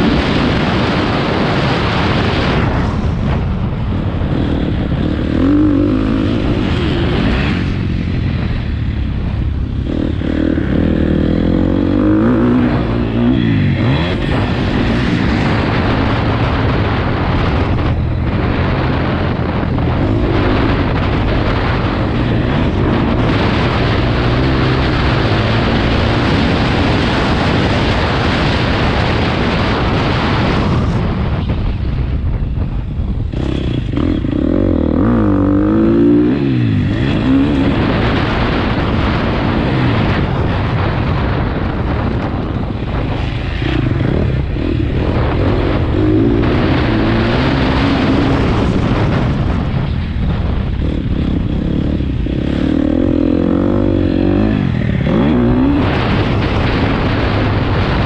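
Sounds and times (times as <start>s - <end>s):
motocross bike engine revving: 3.8s - 30.8s, 33.2s - 58.0s.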